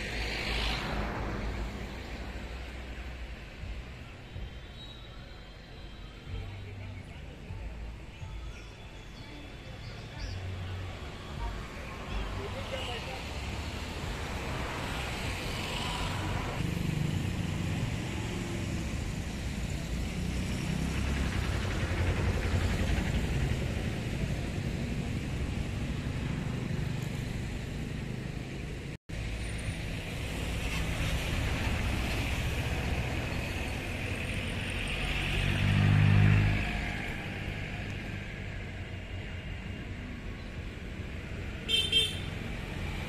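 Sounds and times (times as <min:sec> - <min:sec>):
road traffic rumble: 0:00.0 - 0:43.0
vehicle passing: 0:11.6 - 0:38.7.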